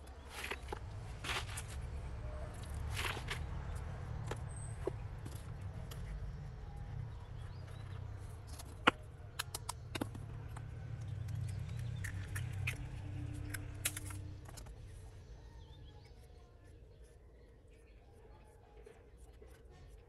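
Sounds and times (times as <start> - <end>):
low steady rumble: 0.0 - 20.0
soil rustling in plastic pot: 0.2 - 3.8
sharp clicks and knocks: 7.9 - 14.7.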